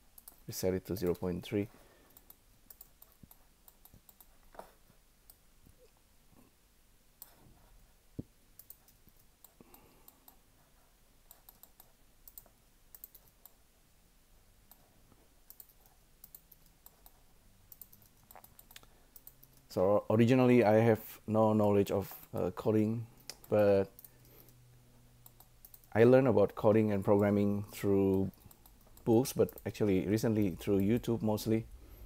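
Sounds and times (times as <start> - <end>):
mouse and keyboard clicks: 11.3 - 13.6, 15.5 - 19.7.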